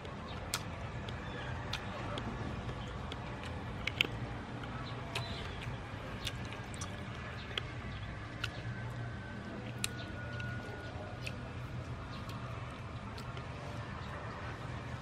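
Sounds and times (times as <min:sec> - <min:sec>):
crunching crispy food: 0:00.4 - 0:14.8.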